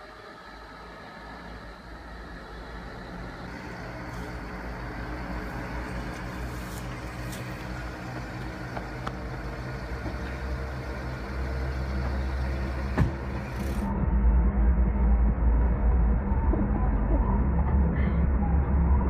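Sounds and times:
car engine hum: 0.0 - 19.0
muffled rumble inside car cabin: 0.0 - 19.0
tyre noise on asphalt: 3.6 - 13.9.

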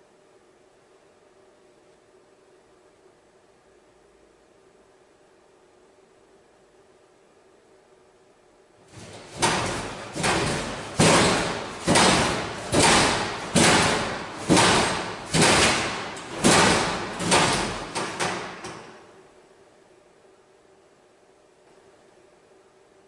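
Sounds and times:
loud echoing bangs: 8.9 - 19.0.

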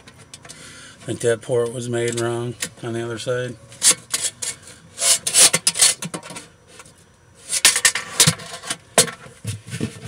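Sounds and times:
metal tape measure scraping on wood: 3.8 - 6.1.

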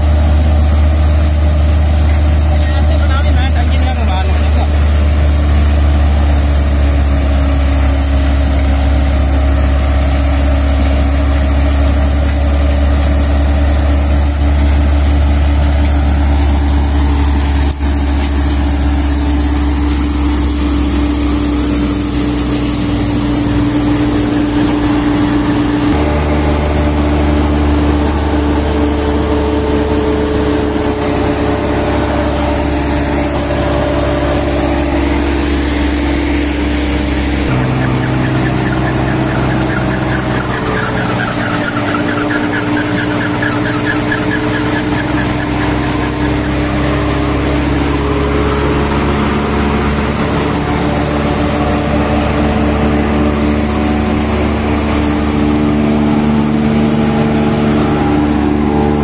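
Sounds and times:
combine harvester engine drone: 0.0 - 59.0.

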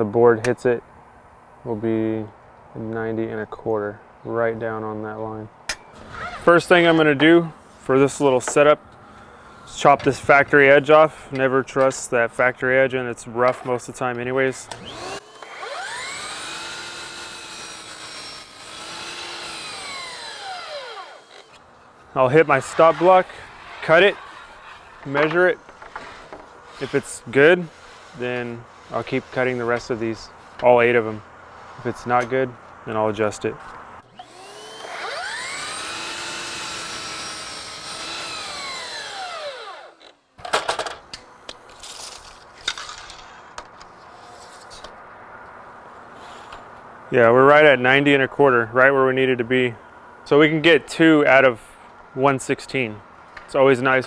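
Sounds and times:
miter saw whining: 14.7 - 29.6, 34.1 - 40.2.

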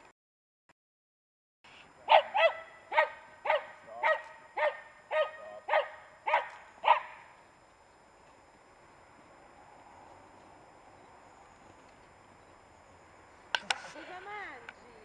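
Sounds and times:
small dog barking sharply: 2.1 - 7.2.

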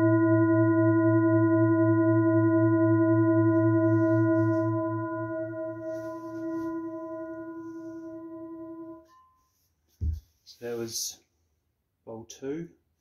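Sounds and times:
singing bowl ringing: 0.0 - 9.5.

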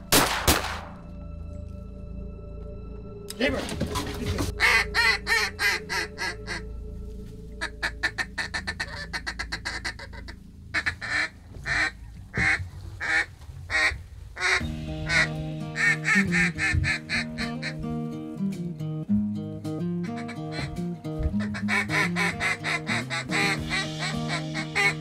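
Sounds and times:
music: 0.0 - 13.2, 13.8 - 25.0
duck call quacks: 7.6 - 17.8, 21.4 - 25.0.

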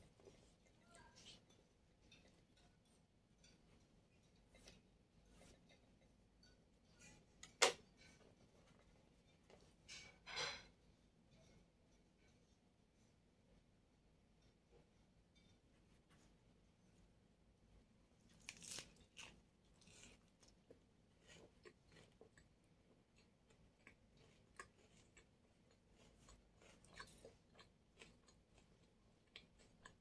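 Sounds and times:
chewing wrap crunching: 18.3 - 30.0.

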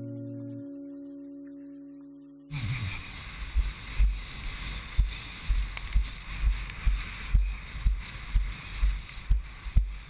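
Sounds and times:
steady wind hiss: 2.5 - 10.0
wind gusts buffeting microphone: 2.7 - 10.0.

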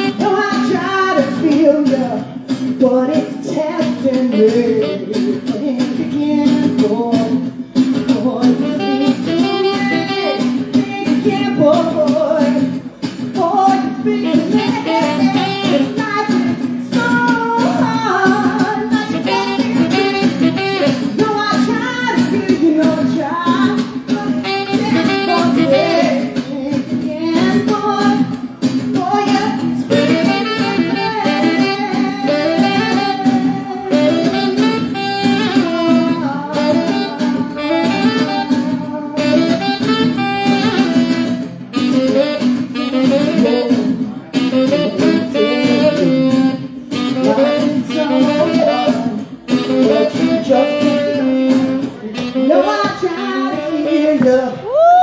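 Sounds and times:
saxophone solo: 0.0 - 1.0, 3.4 - 5.6, 8.6 - 12.8, 14.0 - 26.4, 29.0 - 55.0
strummed guitar: 0.0 - 54.8.

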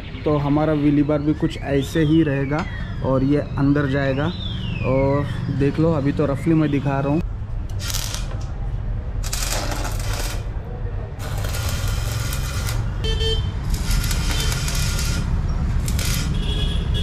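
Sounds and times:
welding arc crackling: 7.7 - 8.4, 9.2 - 10.6, 11.2 - 16.6.

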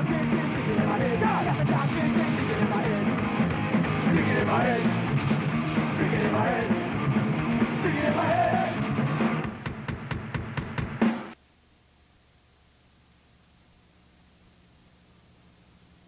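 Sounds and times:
punk rock song with yelled vocals: 0.0 - 10.6.

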